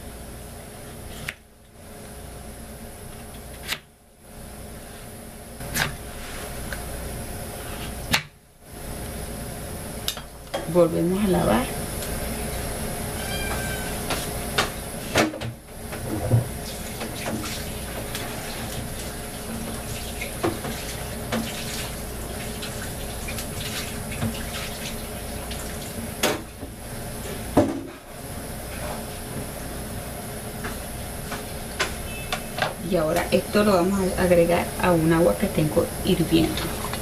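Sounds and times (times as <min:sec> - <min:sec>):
kitchen tap running: 0:16.3 - 0:26.7, 0:36.2 - 0:37.0.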